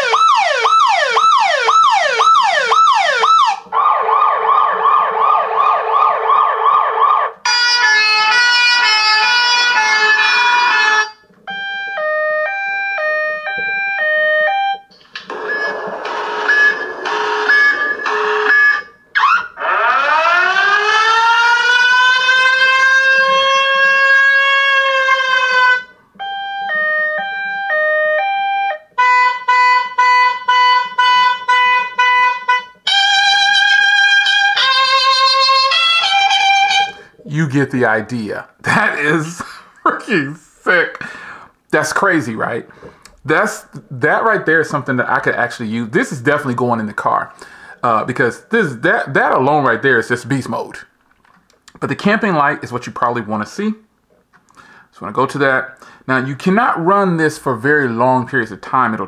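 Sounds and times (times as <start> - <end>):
air-raid style siren: 0.0 - 37.3
wailing siren: 0.0 - 37.3
two-tone beeps: 13.5 - 19.0, 26.2 - 32.7
rapid pulsed beeping: 15.3 - 19.1.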